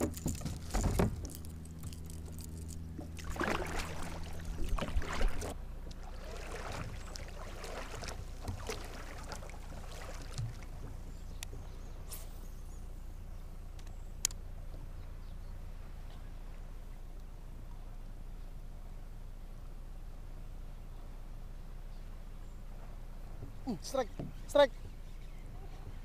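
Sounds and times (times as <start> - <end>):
water splashing against kayak hull: 0.0 - 11.1.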